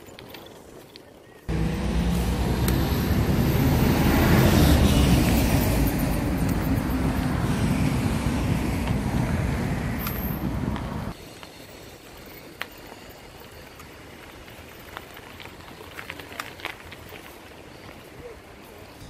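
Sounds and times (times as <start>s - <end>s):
wind buffeting microphone: 1.5s - 11.2s.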